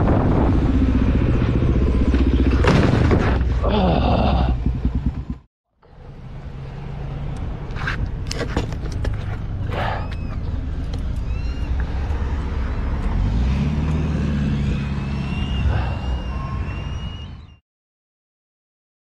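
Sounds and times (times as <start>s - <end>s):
motorcycle engine running: 0.2s - 2.8s, 3.9s - 5.5s.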